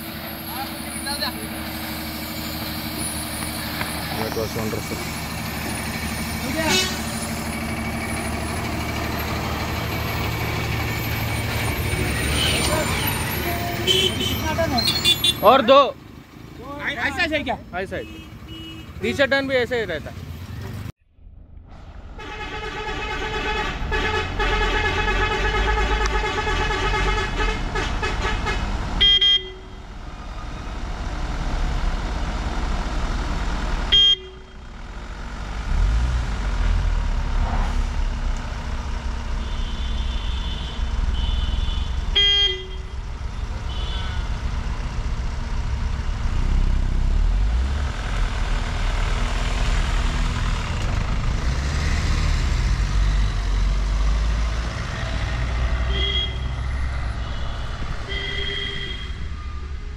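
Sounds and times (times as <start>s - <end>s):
car engines rumbling at low speed: 0.0s - 59.9s
vehicle horn: 6.6s - 7.1s, 12.2s - 15.5s, 17.9s - 19.3s, 22.2s - 29.9s, 33.9s - 34.6s, 39.4s - 43.0s, 43.6s - 44.4s, 55.8s - 59.7s.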